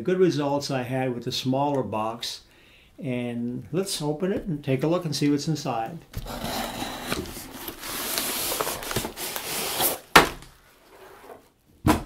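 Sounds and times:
cardboard flaps rustling: 6.1 - 11.0
packing tape cut and torn: 7.0 - 10.4.

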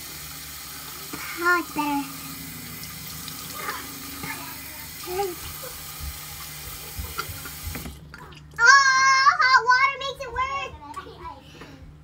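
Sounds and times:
sink tap running into basin: 0.0 - 8.0.

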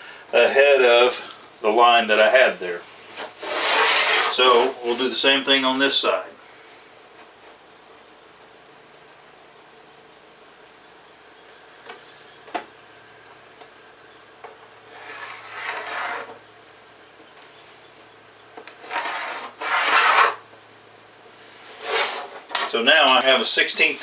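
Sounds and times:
pencil drawn along metal ruler: 3.4 - 4.8, 14.9 - 16.4, 18.8 - 20.4.

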